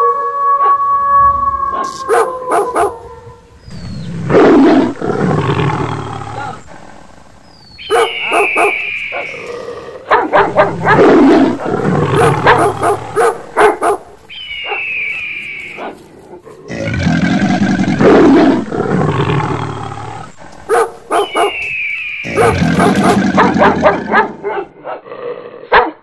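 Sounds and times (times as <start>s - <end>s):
animal growls and roars: 3.6s - 13.6s, 16.4s - 21.4s, 22.2s - 24.4s, 25.0s - 25.7s.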